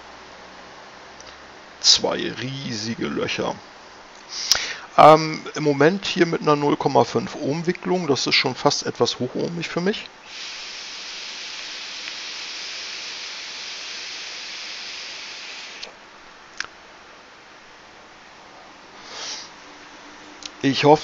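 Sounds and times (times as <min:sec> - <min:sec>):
breathy puff: 0:04.3 - 0:04.9, 0:10.3 - 0:14.9, 0:19.0 - 0:19.6
air hissing through e-cigarette: 0:10.2 - 0:15.9, 0:19.0 - 0:19.6.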